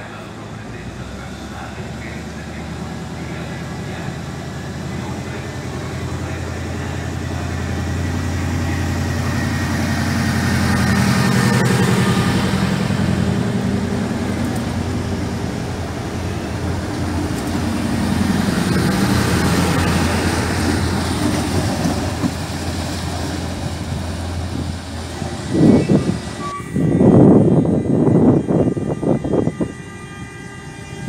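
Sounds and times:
rail noise: 0.0 - 31.0
train motor hum: 0.0 - 31.0.

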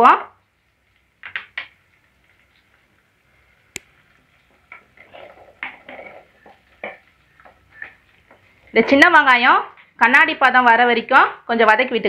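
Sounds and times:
wooden spoon scraping pot: 4.4 - 9.2.

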